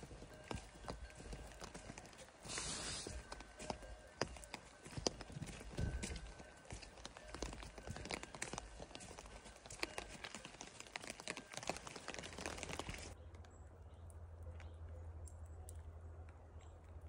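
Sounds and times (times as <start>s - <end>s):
rain falling on trees: 0.0s - 3.7s, 4.3s - 13.2s
footsteps on wet dirt trail: 0.0s - 13.2s.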